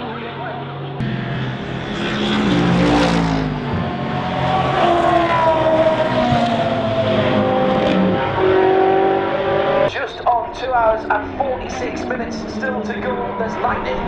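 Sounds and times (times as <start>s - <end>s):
racing car engines passing: 0.0s - 14.0s.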